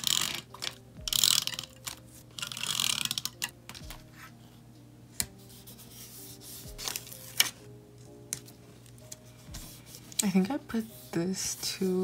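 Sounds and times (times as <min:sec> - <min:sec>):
faint background music: 0:00.0 - 0:12.0
paper rustling: 0:06.3 - 0:07.7.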